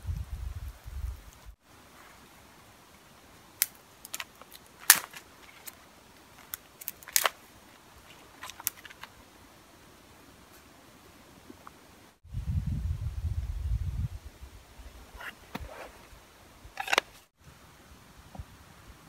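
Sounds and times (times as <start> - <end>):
dry twigs snapping: 3.6 - 9.2.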